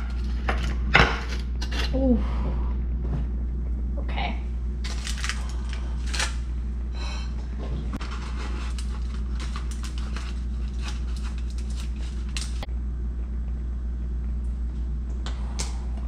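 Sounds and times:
steady low hum: 0.0 - 16.0
foil crinkling: 4.8 - 6.4, 8.0 - 12.7
metal spatula scraping foil tray: 8.0 - 12.6.

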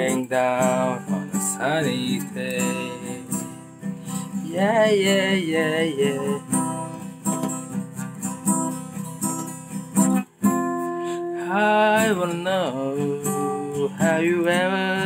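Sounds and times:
man singing wordlessly: 0.0 - 3.6, 4.3 - 6.9, 11.2 - 15.0
acoustic guitar strumming chords: 0.0 - 15.0.

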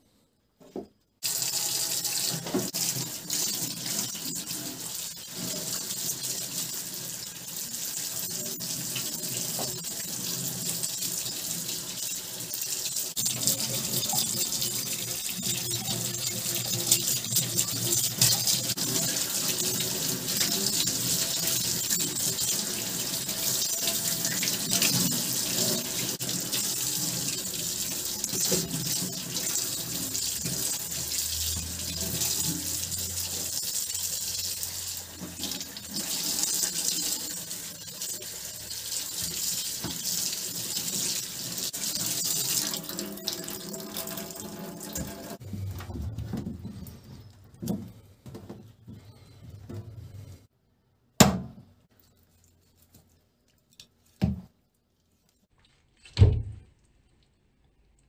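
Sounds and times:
tap water splashing in sink: 1.3 - 4.2, 27.9 - 32.8, 39.1 - 41.2.

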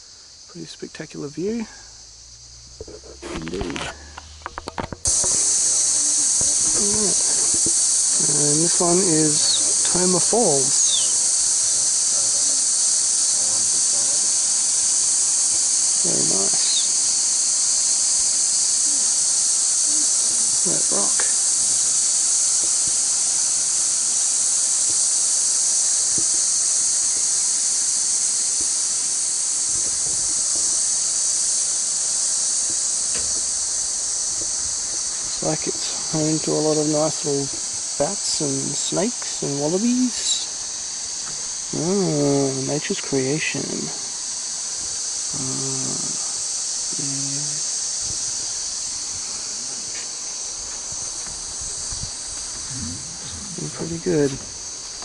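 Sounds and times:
insect chorus drone: 0.0 - 55.0
man humming: 45.3 - 46.4, 47.0 - 47.7, 52.6 - 54.5.

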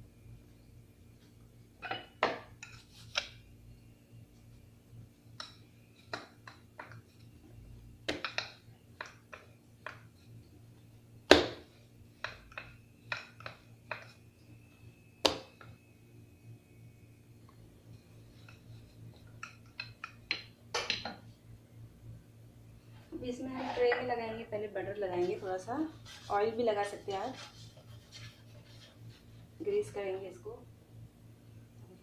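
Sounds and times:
rolling pin knocking on marble: 15.2 - 15.7.

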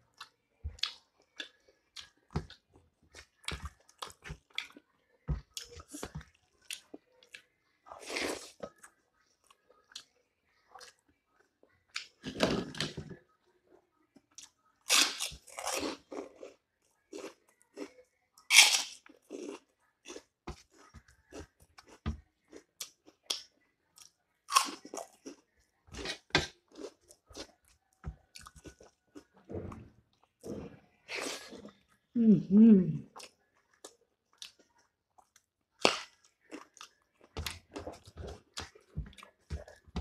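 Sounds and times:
person chewing crunchy food: 0.1 - 4.8, 14.3 - 31.8, 33.2 - 40.0.

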